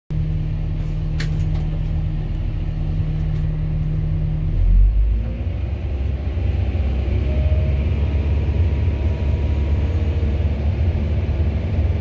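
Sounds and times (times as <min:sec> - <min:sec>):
deep loud rumble: 0:00.1 - 0:12.0
excavator engine humming: 0:00.1 - 0:12.0.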